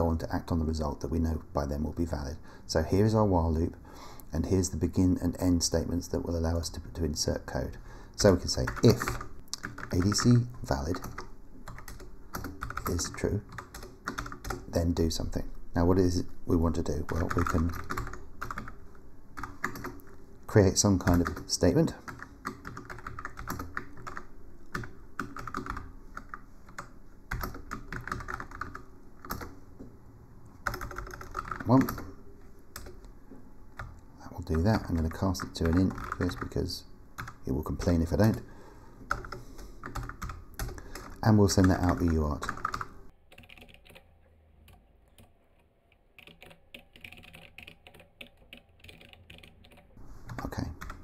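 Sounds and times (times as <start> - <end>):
typing on computer keyboard: 8.2 - 14.7, 16.8 - 18.8, 19.4 - 20.1, 21.0 - 29.6, 30.6 - 32.1, 32.8 - 33.0, 33.8 - 36.6, 37.2 - 37.4, 39.1 - 51.0.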